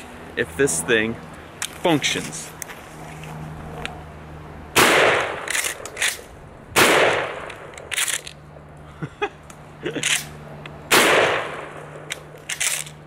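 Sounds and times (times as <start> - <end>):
shotgun shots: 4.8 - 6.2, 6.8 - 7.7, 10.9 - 11.8
shotgun pump racking clacks: 7.5 - 8.4, 12.1 - 13.0.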